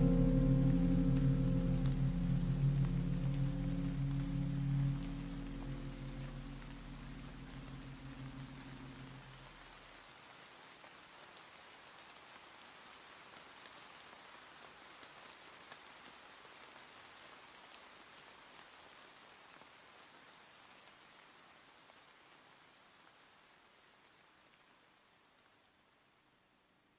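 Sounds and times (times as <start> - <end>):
light crackles: 0.0 - 10.3
faint steady hiss: 0.0 - 26.9.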